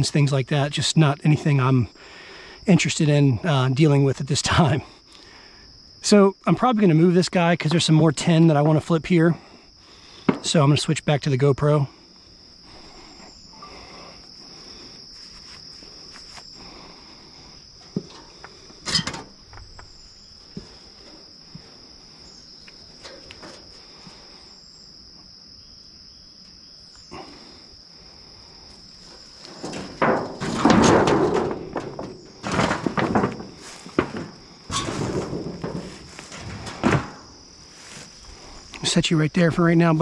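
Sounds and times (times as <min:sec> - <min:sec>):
high-pitched insect chorus: 0:00.0 - 0:40.0
boards and metal sheets clattering: 0:17.8 - 0:19.4, 0:29.4 - 0:37.5.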